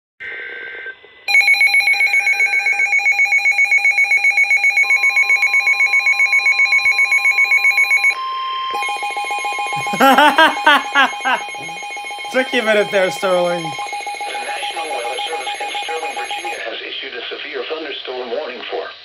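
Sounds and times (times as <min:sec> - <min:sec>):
rapid alarm beeping: 0:01.3 - 0:16.6
steady alert tone: 0:08.8 - 0:16.6.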